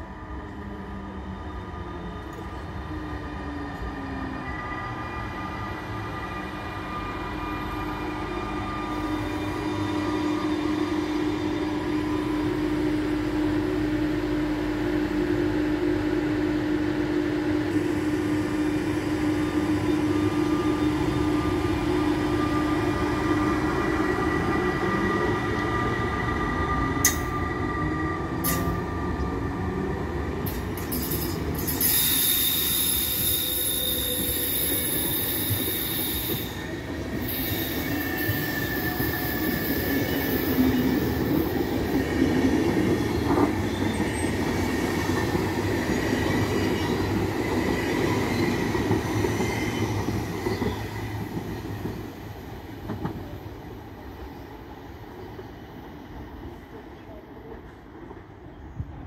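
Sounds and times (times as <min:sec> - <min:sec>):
train wheels rumbling on track: 0:00.0 - 0:59.0.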